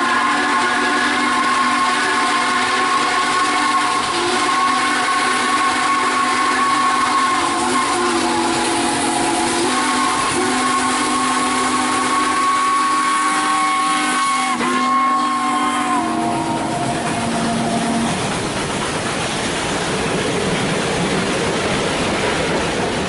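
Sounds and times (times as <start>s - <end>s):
steam whistle chord: 0.0s - 18.2s
steam hiss: 0.0s - 23.0s.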